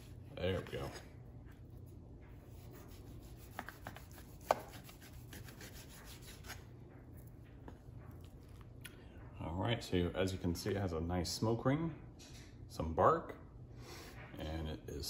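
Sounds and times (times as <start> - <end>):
knife slicing meat on cutting board: 2.5 - 6.6.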